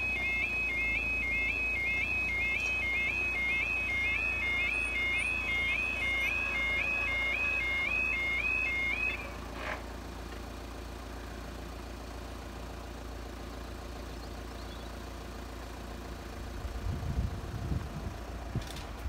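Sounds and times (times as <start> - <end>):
two-tone level-crossing alarm warbling: 0.0 - 9.4.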